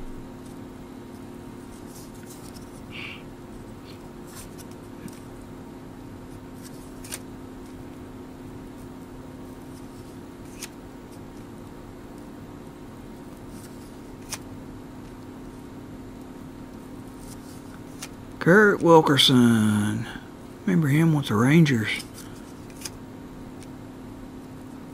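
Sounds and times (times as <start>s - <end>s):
steady low hum: 0.0s - 24.9s
cards being handled: 1.2s - 5.3s, 6.3s - 7.9s, 9.5s - 11.5s, 13.3s - 15.2s, 17.1s - 18.8s, 21.7s - 23.0s
crisp card snaps: 6.6s - 7.3s, 9.7s - 11.4s, 13.6s - 14.5s, 22.0s - 23.0s.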